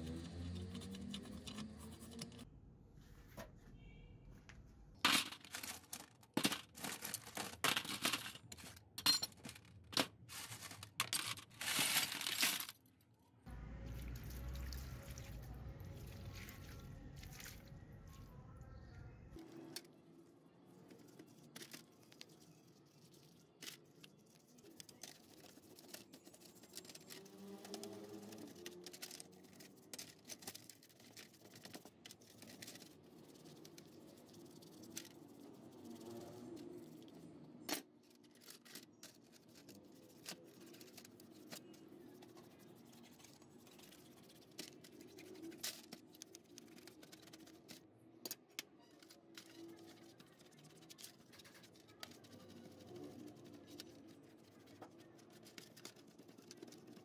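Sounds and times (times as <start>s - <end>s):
metal parts clinking: 5.1s - 12.8s
brush scrubbing metal parts: 20.9s - 47.8s, 48.9s - 57.0s.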